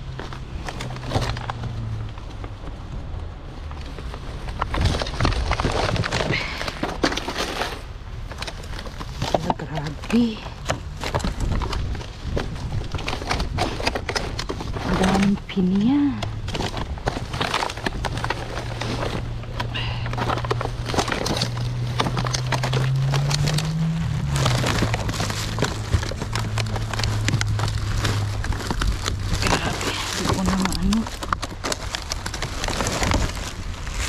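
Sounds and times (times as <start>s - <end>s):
rummaging rustling and clatter: 0.0s - 2.9s, 3.7s - 34.0s
low hum: 9.6s - 34.0s.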